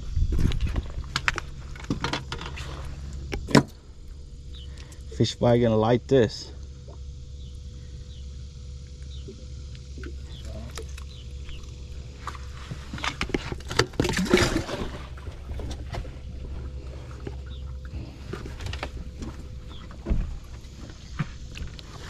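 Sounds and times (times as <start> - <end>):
steady low hum: 0.0 - 22.0
knocks and scrapes on boat: 0.2 - 3.8, 11.5 - 22.0.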